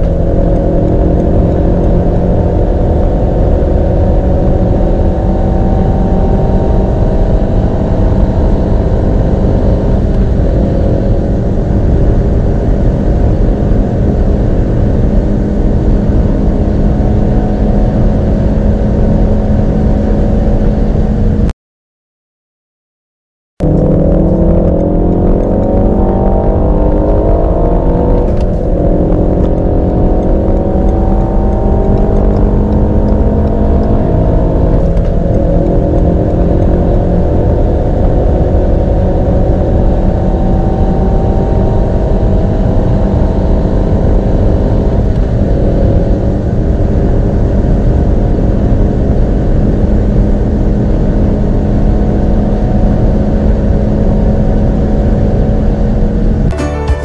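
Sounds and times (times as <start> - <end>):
car engine accelerating hard: 0.0 - 21.5, 23.6 - 57.0.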